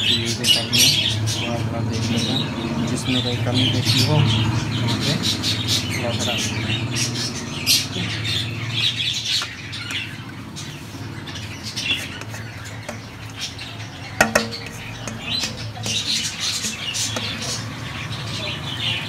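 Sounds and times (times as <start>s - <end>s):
budgies chirping and squawking: 0.0s - 19.0s
dish clinking: 14.2s - 17.6s.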